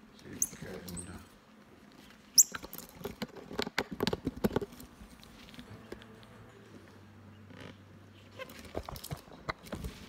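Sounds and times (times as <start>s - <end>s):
rustling: 0.2s - 10.0s
monkey squeaky chirps: 2.4s - 2.6s.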